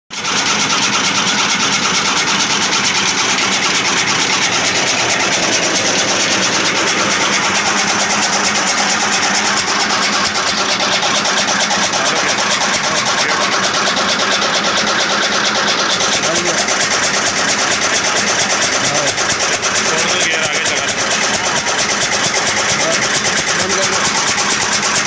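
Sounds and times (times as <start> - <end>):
chaff cutter gears rattling: 0.2 - 25.0.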